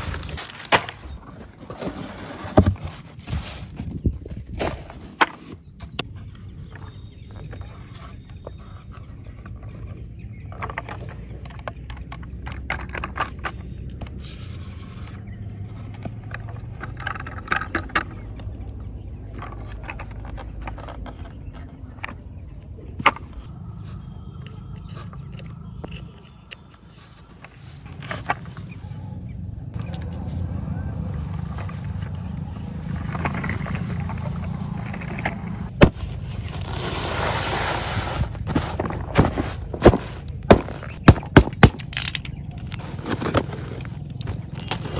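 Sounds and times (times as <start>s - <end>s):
toy truck scraping and clicking: 0.0s - 4.0s, 7.5s - 22.2s, 31.3s - 44.9s
wind rumbling on microphone: 2.6s - 8.8s.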